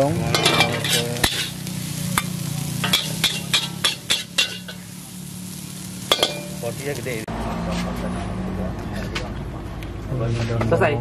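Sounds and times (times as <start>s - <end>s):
spatula scraping and clanking wok: 0.0s - 6.8s
food sizzling: 0.0s - 7.7s.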